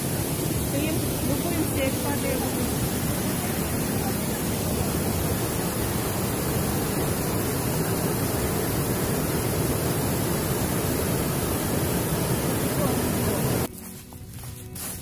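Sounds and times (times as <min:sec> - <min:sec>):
river water rushing over rocks: 0:00.0 - 0:13.7.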